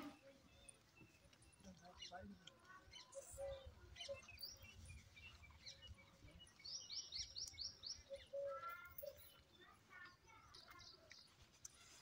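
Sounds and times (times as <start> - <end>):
bird chirping: 0.0 - 9.5.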